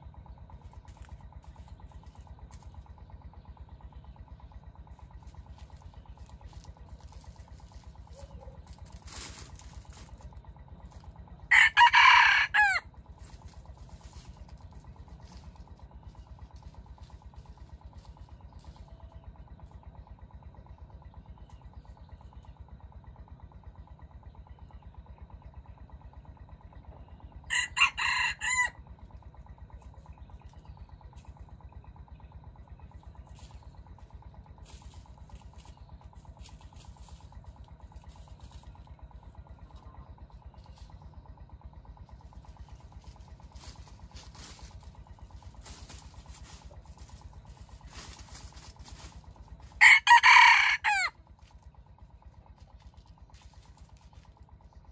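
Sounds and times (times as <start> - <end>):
steady low hum: 0.0 - 54.9
rooster crowing: 11.5 - 12.9, 27.5 - 28.8, 49.8 - 51.2.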